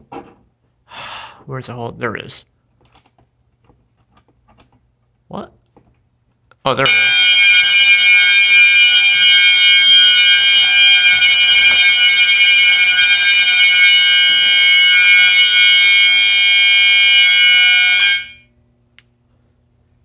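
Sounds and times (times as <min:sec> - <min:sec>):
alarm horns steady tone: 0:06.8 - 0:18.6.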